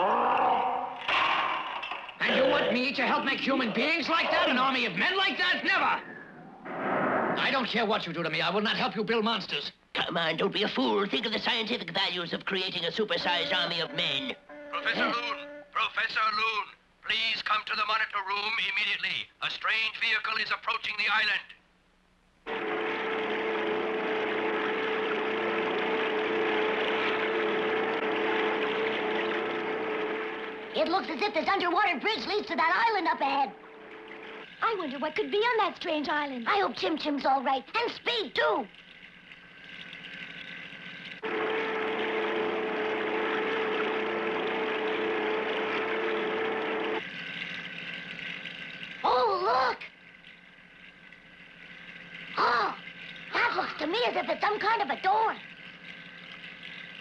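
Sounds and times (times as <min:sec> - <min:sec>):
cartoon underwater rushing drone: 0:03.3 - 0:07.7, 0:22.5 - 0:34.7, 0:39.4 - 0:57.0
motor hum with held tone: 0:22.4 - 0:30.8, 0:33.2 - 0:34.7, 0:38.7 - 0:57.0
rushing watery noise: 0:22.5 - 0:31.5, 0:32.5 - 0:35.5.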